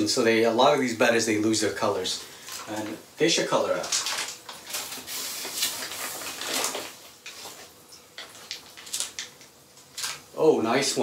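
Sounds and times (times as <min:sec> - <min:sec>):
plastic bags and paper rustling: 0:02.0 - 0:10.4.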